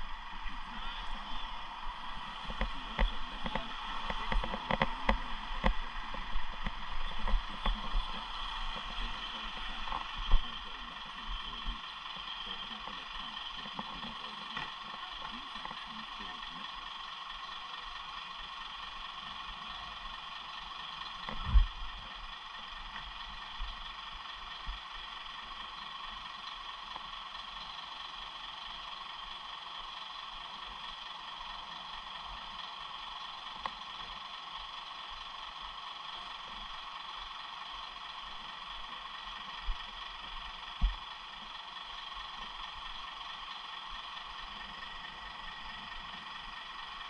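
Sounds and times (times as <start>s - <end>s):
bicycle whirring: 0.0s - 16.8s.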